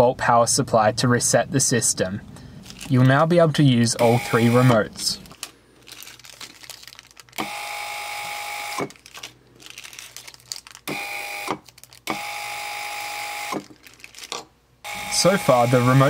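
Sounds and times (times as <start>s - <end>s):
electric motor whine: 7.4s - 8.9s, 14.9s - 16.0s.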